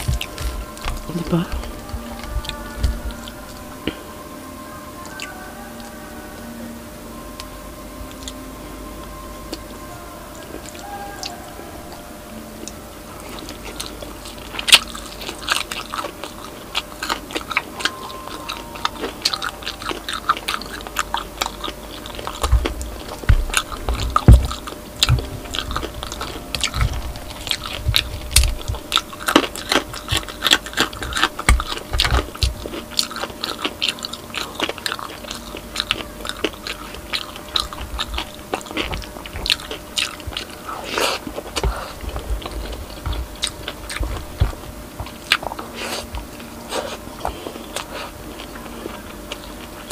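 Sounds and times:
chewing and crunching: 0.0s - 6.6s, 7.2s - 49.9s
heavy low thuds: 22.4s - 29.2s.

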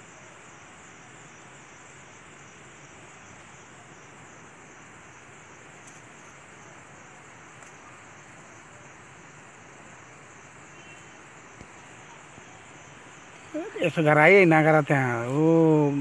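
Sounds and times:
high insect chorus: 0.0s - 16.0s
outdoor background hiss: 0.0s - 16.0s
faint ticks: 7.5s - 8.4s.

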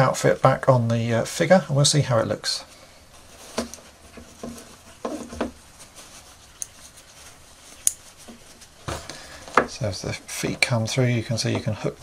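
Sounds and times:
fabric rustling: 3.0s - 9.9s.

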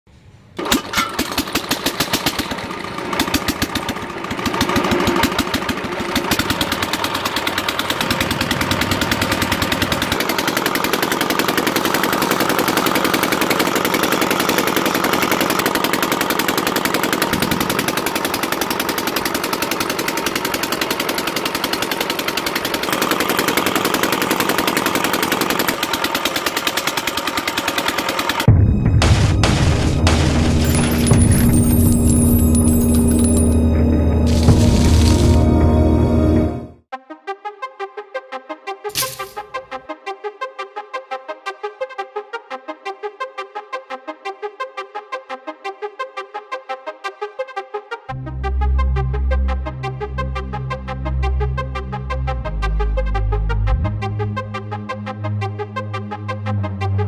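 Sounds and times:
small electric motor running: 3.8s - 28.5s
sieve tray rattling: 38.9s - 39.4s.

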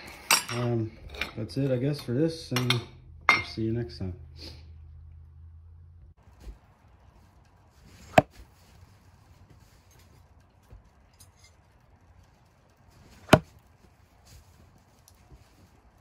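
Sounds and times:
knife striking wooden log: 8.1s - 8.3s, 13.2s - 13.5s.

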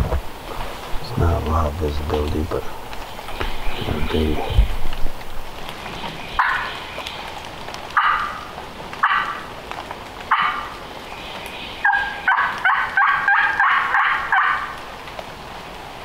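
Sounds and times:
turkey call yelps: 6.4s - 6.9s, 8.0s - 9.5s, 10.3s - 10.8s, 11.8s - 14.8s.

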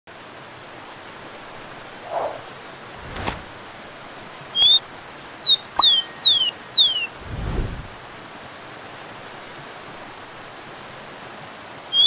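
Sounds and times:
waterfall rushing: 0.1s - 12.0s
sparrow singing whistles: 4.6s - 7.1s.

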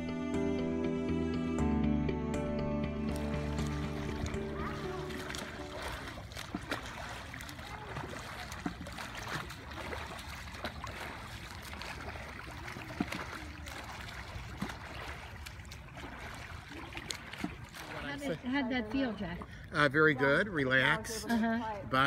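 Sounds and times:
hand splashing into water: 3.1s - 18.1s
water splashing from swimming strokes: 3.1s - 22.0s.

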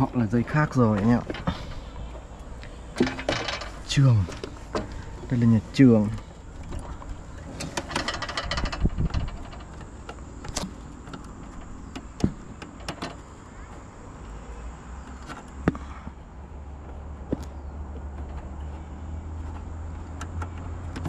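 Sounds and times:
low steady rumble: 0.0s - 21.0s.

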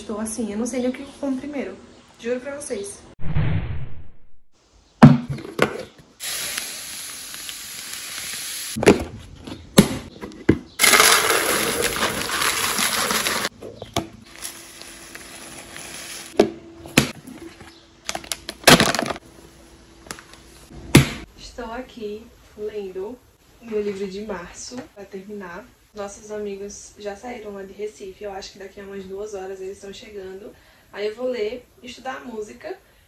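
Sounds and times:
dry food pouring into canister: 10.8s - 13.5s
plastic packet crinkling: 10.8s - 13.5s.

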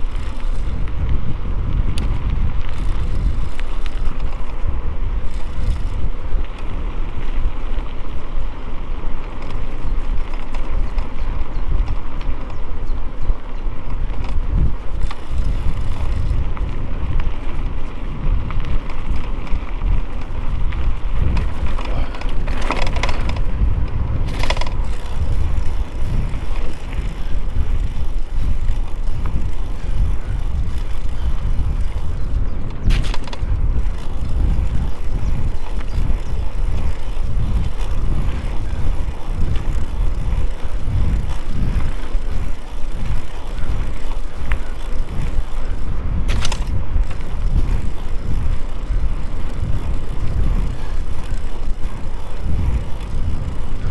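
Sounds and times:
bike rattling: 0.0s - 53.9s
bike tyres rumbling: 0.0s - 53.9s
wind buffeting microphone: 0.0s - 53.9s.

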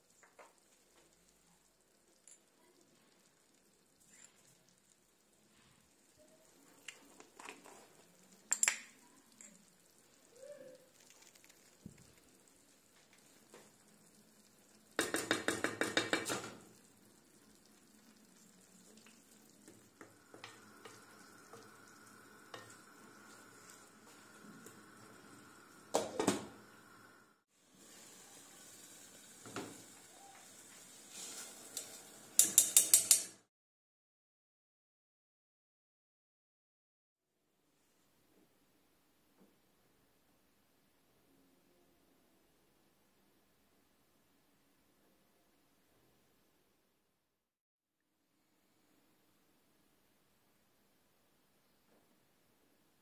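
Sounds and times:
faint sizzling: 0.0s - 33.5s
wooden spoon scraping in pot: 30.7s - 33.3s
spoon clinking on pot: 32.4s - 33.3s.

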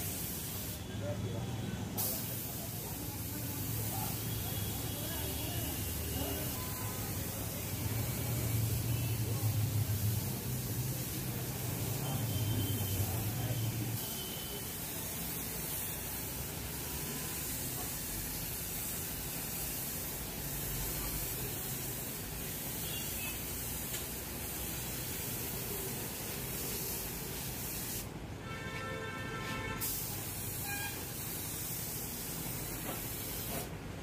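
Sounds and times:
paint spray gun hissing: 0.0s - 0.8s, 2.0s - 6.6s.

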